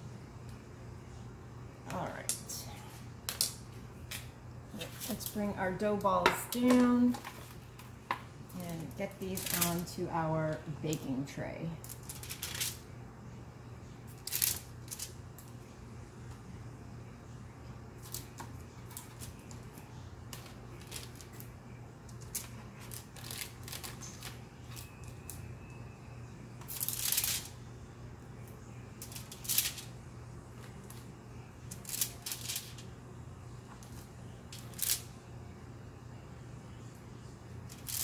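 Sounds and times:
parchment paper rustling: 0:08.6 - 0:09.9, 0:11.8 - 0:12.8, 0:18.0 - 0:21.5, 0:22.2 - 0:25.0, 0:29.0 - 0:29.9, 0:31.7 - 0:32.8.

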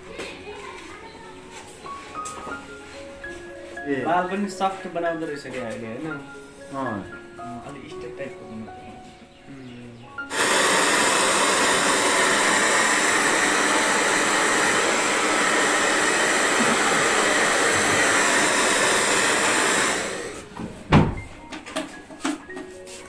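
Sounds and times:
hair dryer blowing: 0:10.3 - 0:20.5.

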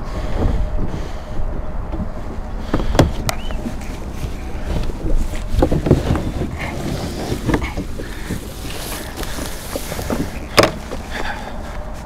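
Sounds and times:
wind rumbling on microphone: 0:00.0 - 0:12.0
plastic boat hull knocking and scraping: 0:01.9 - 0:11.2.

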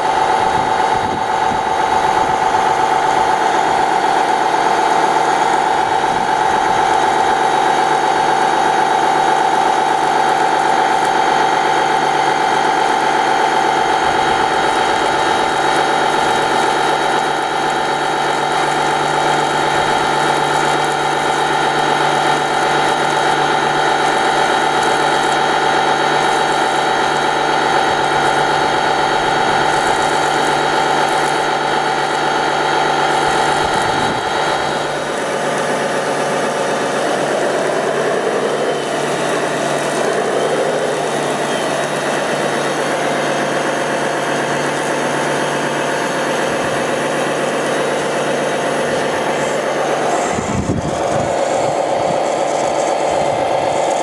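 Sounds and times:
toy truck motor humming: 0:00.0 - 0:54.0.

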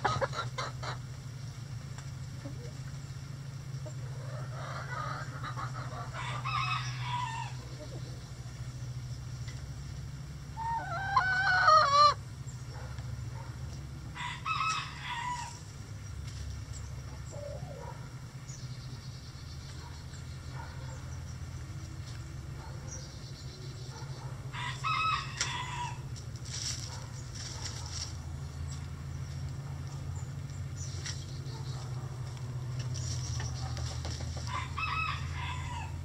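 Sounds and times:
chicken calls: 0:00.0 - 0:01.2, 0:03.7 - 0:08.6, 0:10.4 - 0:15.8, 0:17.0 - 0:18.3, 0:22.0 - 0:26.2, 0:30.9 - 0:36.0
steady low hum: 0:00.0 - 0:36.0
rooster crowing: 0:06.1 - 0:07.6, 0:10.6 - 0:12.2, 0:14.1 - 0:15.6, 0:24.5 - 0:26.1, 0:34.4 - 0:36.0.

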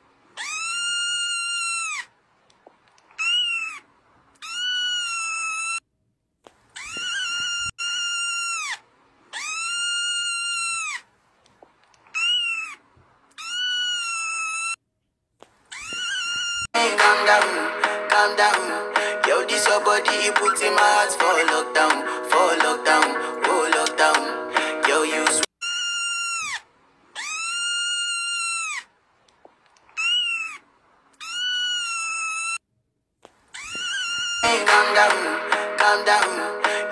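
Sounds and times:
kitten meowing: 0:00.4 - 0:02.0, 0:03.2 - 0:03.8, 0:04.4 - 0:05.8, 0:06.8 - 0:08.8, 0:09.4 - 0:11.0, 0:12.2 - 0:12.8, 0:13.4 - 0:14.8, 0:15.7 - 0:16.7, 0:27.2 - 0:28.8, 0:31.2 - 0:32.6, 0:33.6 - 0:34.5
kitten mewing: 0:00.4 - 0:02.0, 0:06.8 - 0:08.8, 0:27.2 - 0:28.8, 0:33.6 - 0:34.5.

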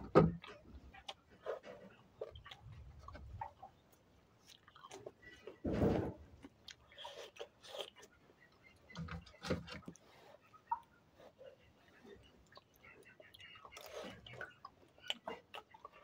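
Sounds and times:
person chewing and crunching: 0:00.4 - 0:05.6, 0:06.4 - 0:08.2, 0:12.4 - 0:16.0
dull thump: 0:05.7 - 0:06.2.

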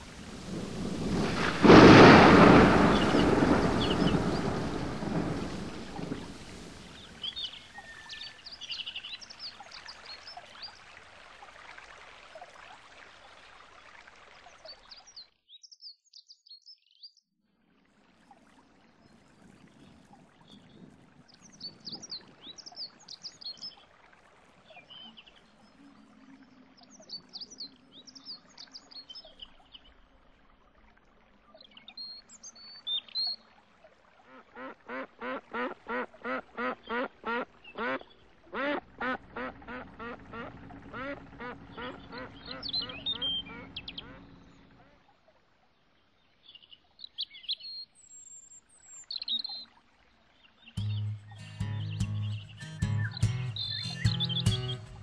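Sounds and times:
duck quacking: 0:34.6 - 0:44.3
small birds chirping: 0:40.7 - 0:44.7, 0:50.4 - 0:55.0.

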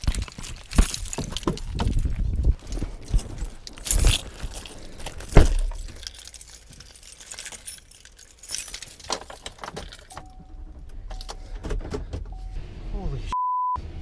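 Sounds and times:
keys jangling: 0:00.0 - 0:10.4
handling knocks and rattles: 0:00.0 - 0:12.4
short electronic beep: 0:13.3 - 0:13.8.

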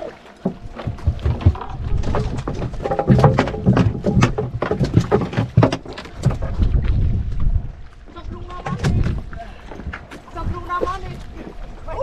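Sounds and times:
rapid knocking and thumping: 0:00.9 - 0:06.4.

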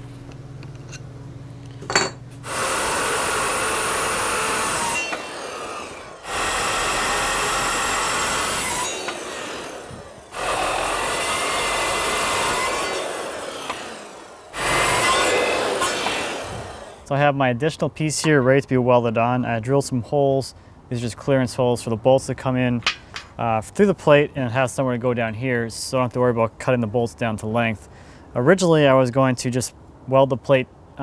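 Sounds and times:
circular saw cutting steel: 0:02.5 - 0:17.1.

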